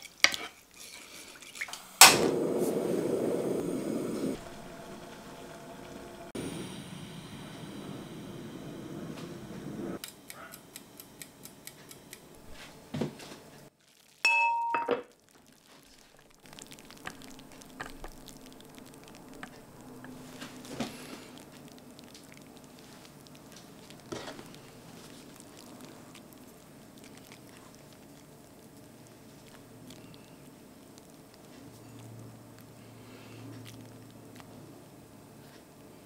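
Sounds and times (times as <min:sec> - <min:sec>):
pot clanging: 0:14.3 - 0:15.1
rustling: 0:15.2 - 0:35.7.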